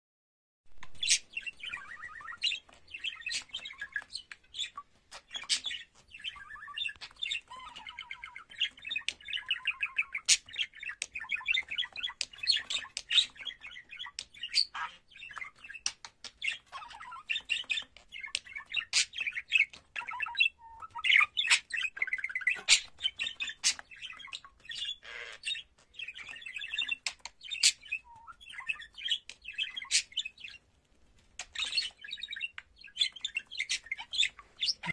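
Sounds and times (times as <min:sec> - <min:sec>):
budgerigar warbling: 0:33.7 - 0:34.9.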